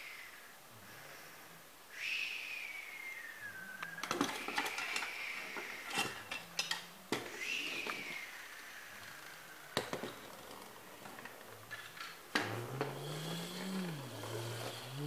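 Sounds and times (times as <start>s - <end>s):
plastic toys clacking on tabletop: 3.8s - 8.1s
friction motor whirring: 12.3s - 15.0s.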